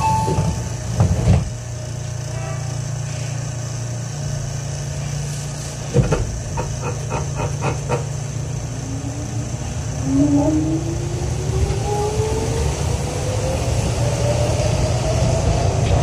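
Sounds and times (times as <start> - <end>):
train car thump: 0.0 - 1.6, 5.8 - 8.3.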